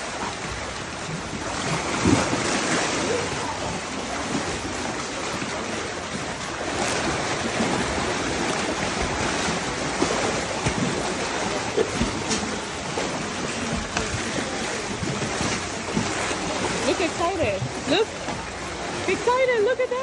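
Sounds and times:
sharp splashes: 0.0 - 20.0
water splashing and churning: 0.0 - 20.0.

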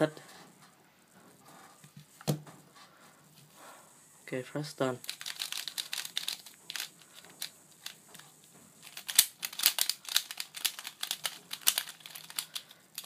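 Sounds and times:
plastic puzzle clacking and rattling: 5.0 - 8.2, 8.8 - 13.0.

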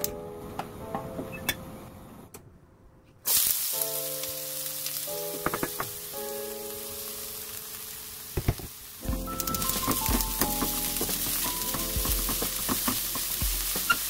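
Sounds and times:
background music: 0.0 - 2.3, 3.6 - 8.4, 9.0 - 14.0
scallions sizzling in hot oil: 3.3 - 14.0.

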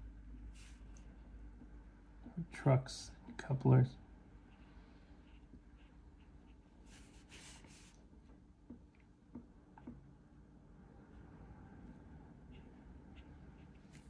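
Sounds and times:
marker scratching on paper: 5.2 - 8.0, 12.4 - 14.0.

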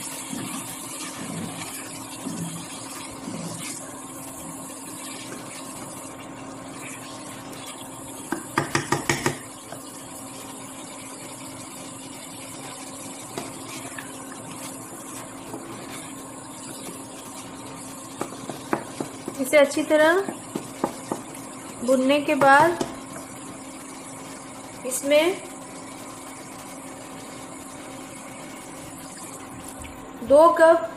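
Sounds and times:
food sizzling in a pan: 0.0 - 29.8
spoon knocking against pan: 8.3 - 9.5.

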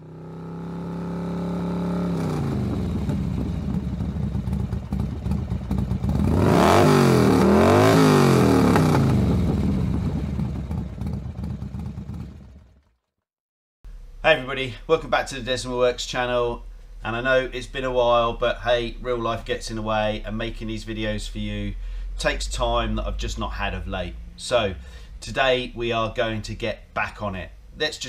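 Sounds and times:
motorcycle engine idling and revving: 0.0 - 13.2.

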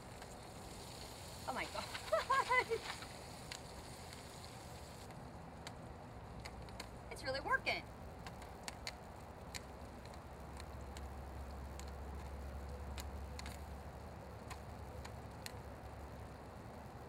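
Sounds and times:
popcorn popping in pan: 7.9 - 17.0.

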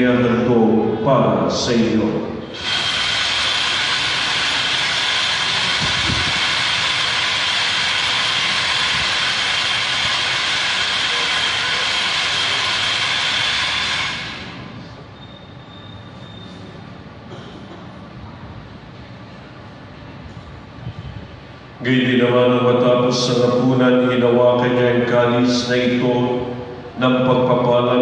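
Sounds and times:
high-pitched rushing noise: 2.0 - 15.1.

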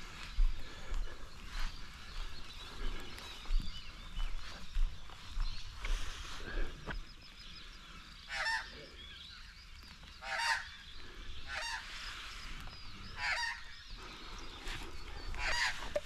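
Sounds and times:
faint bird chirps: 0.1 - 16.0
animal harsh calls: 8.3 - 8.9, 10.2 - 10.8, 13.2 - 13.8, 15.4 - 16.0.

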